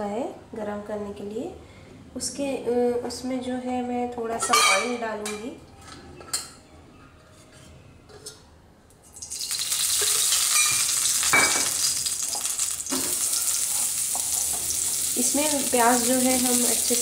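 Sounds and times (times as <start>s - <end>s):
oil sizzling in a frying pan: 9.2s - 17.0s
clinks against a pan: 10.0s - 11.8s.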